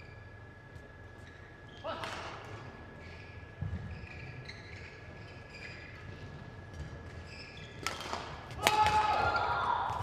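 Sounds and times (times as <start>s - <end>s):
shoes squeaking on court: 0.0s - 1.9s, 2.5s - 8.4s
faint high whine: 0.0s - 8.4s.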